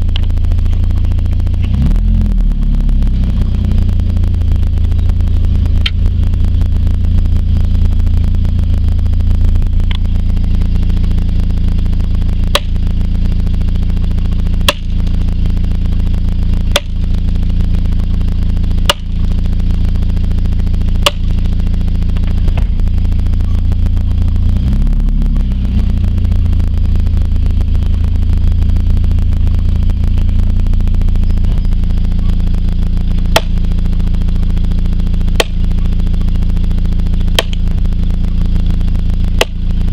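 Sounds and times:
truck engine running: 0.0 - 39.9
post pounder striking posts: 12.5 - 12.8, 14.6 - 15.1, 16.7 - 17.0, 18.8 - 19.2, 21.0 - 21.4, 33.3 - 33.6, 35.3 - 35.6, 37.3 - 37.7, 39.4 - 39.6.

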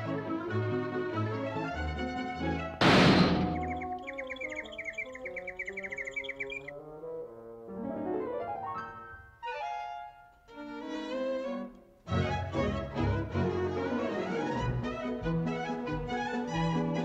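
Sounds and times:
orchestral cartoon music: 0.0 - 17.0
high twittering chirps: 3.3 - 6.8.

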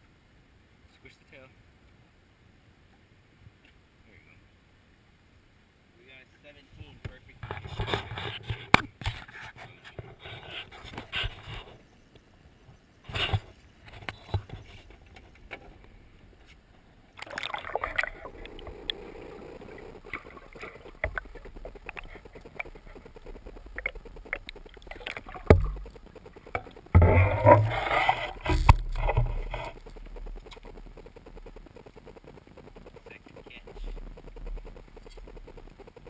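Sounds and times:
water splashing against boat: 17.1 - 30.8.

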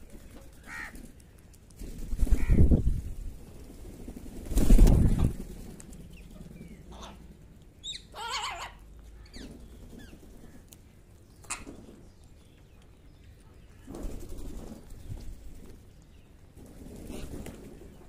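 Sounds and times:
crows and parakeets calling: 0.5 - 1.1, 2.3 - 2.7, 6.6 - 10.6, 11.4 - 11.8
wing flaps: 1.7 - 6.9, 13.9 - 15.8, 16.6 - 18.0.

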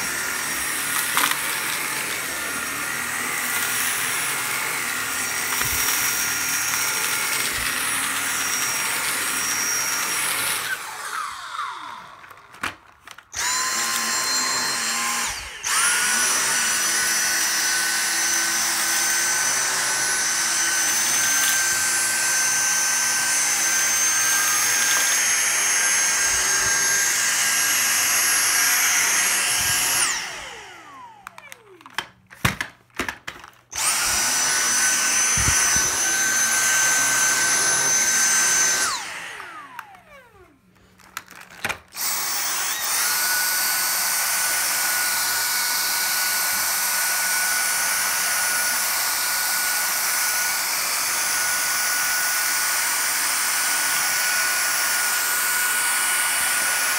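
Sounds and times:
vacuum motor winding down: 0.0 - 32.1, 33.7 - 41.4, 42.0 - 56.9
vacuum cleaner motor whine: 0.0 - 56.9.

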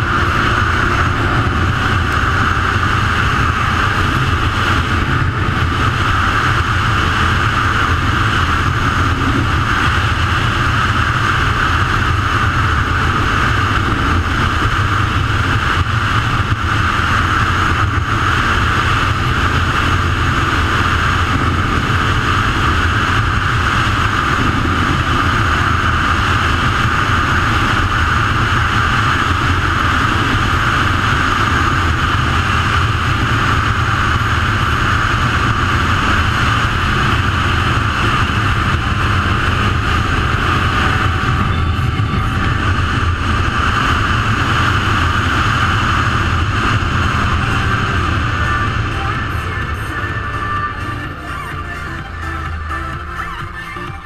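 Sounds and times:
quad bike engine drone: 0.0 - 54.0
wind and road noise: 0.0 - 54.0.

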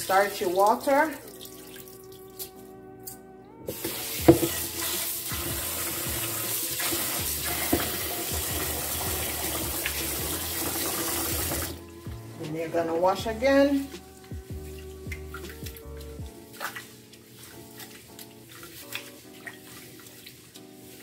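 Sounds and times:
faint background music: 0.0 - 21.0
tap water running into pot: 3.7 - 11.8
pot knocking against sink: 4.2 - 4.6
hand swishing rice in water: 13.8 - 21.0.

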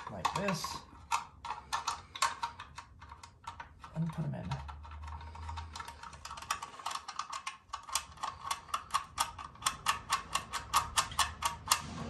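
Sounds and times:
ratchet wrench clicking: 7.7 - 11.8.

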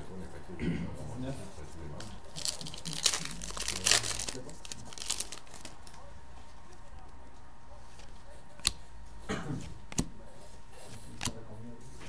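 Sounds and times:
card stock snapping: 2.4 - 6.0, 8.0 - 8.8.

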